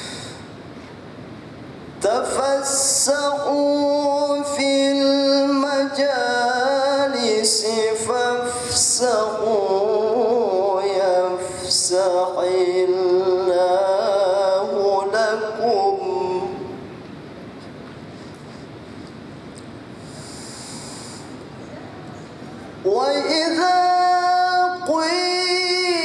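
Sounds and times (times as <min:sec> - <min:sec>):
man melodic reciting: 0:02.0 - 0:16.8, 0:22.8 - 0:26.0.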